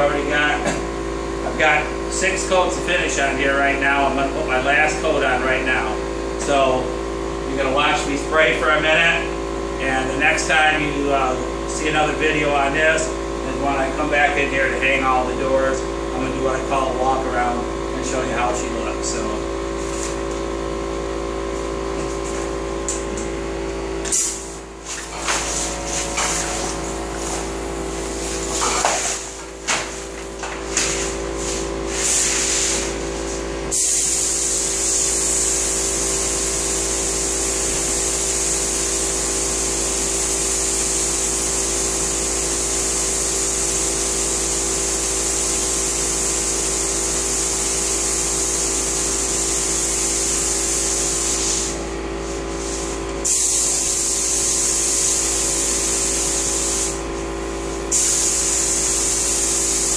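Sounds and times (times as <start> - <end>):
steady hum: 0.0 - 41.7
spray gun hissing: 30.8 - 57.0, 57.9 - 59.9.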